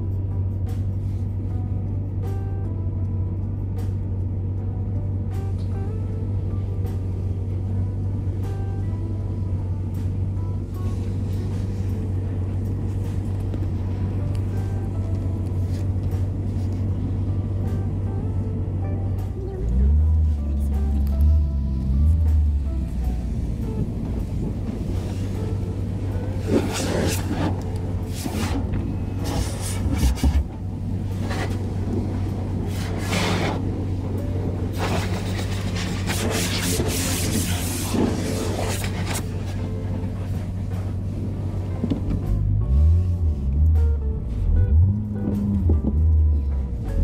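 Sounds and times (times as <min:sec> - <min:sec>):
background music: 0:00.0 - 0:47.0
low machine hum: 0:00.0 - 0:47.0
low vehicle rumble: 0:00.0 - 0:47.0
water jets swishing over car: 0:22.8 - 0:43.4.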